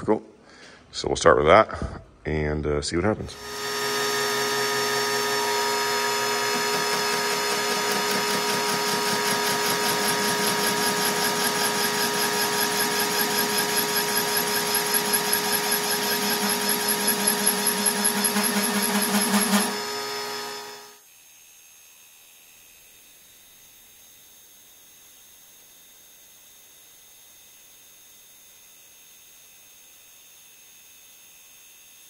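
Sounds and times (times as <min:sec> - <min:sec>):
machine running down: 0:03.3 - 0:21.0
boring machine mechanical whine: 0:03.4 - 0:21.0
rhythmic mechanical pulsing: 0:03.6 - 0:21.0.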